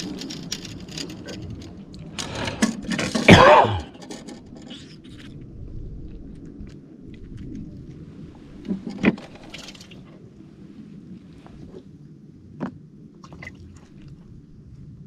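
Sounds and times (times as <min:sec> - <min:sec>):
person grunting: 0:03.3 - 0:04.0.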